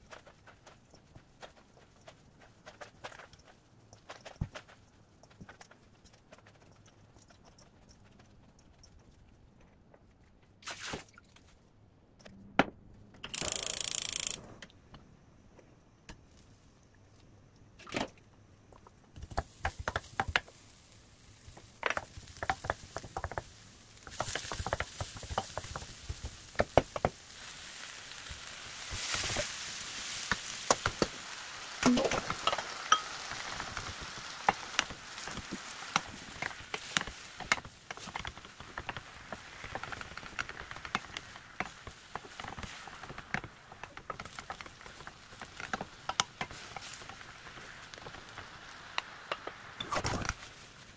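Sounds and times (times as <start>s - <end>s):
onion and garlic sizzling in oil: 18.8s - 50.9s
wooden spatula scraping a pan: 31.9s - 49.8s.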